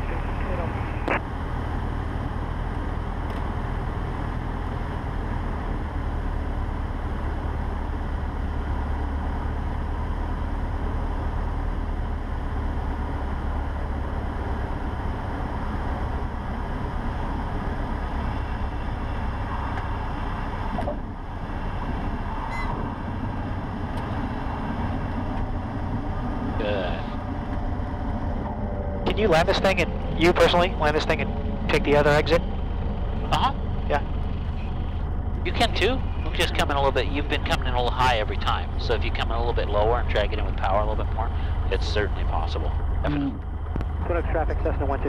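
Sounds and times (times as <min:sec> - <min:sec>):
propeller plane engine: 0:00.0 - 0:45.0.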